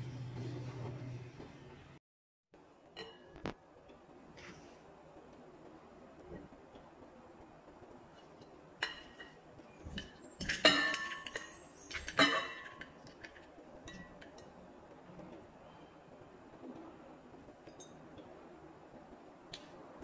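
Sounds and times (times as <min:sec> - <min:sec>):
glass bowls clinking: 0:08.8 - 0:13.0, 0:17.7 - 0:18.0.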